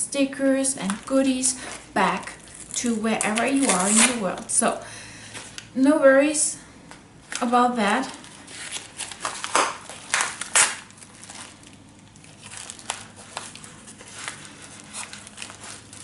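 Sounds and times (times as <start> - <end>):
paper envelope tearing and crinkling: 1.8 - 4.4, 8.2 - 16.0.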